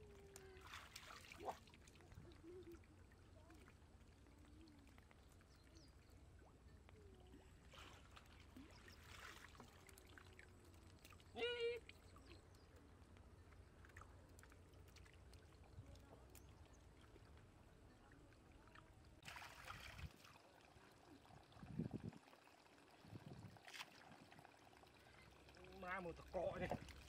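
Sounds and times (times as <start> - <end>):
hands splashing in muddy water: 19.2 - 20.3.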